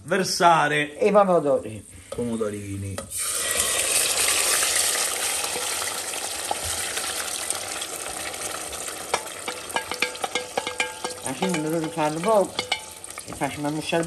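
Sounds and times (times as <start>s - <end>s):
loud sizzle in hot oil: 1.6s - 14.0s
wooden spoon knocking metal pot: 8.1s - 14.0s.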